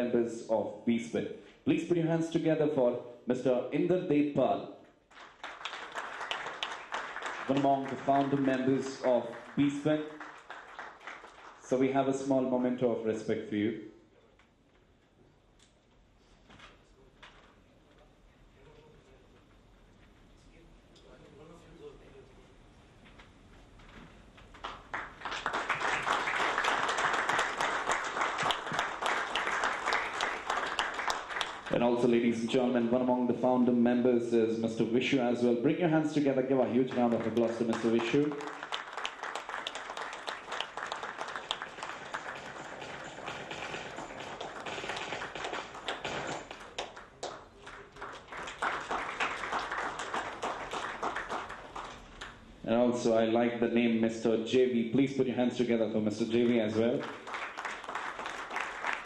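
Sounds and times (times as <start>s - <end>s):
audience applause: 5.1s - 11.9s, 24.6s - 32.1s, 36.6s - 52.2s, 56.7s - 59.0s.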